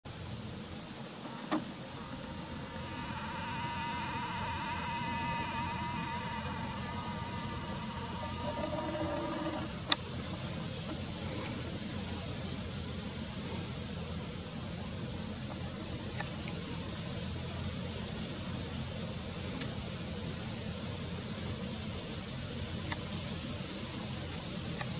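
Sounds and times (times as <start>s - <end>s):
crickets trilling: 0.0s - 24.9s
camera zoom motor whirring: 1.2s - 10.0s.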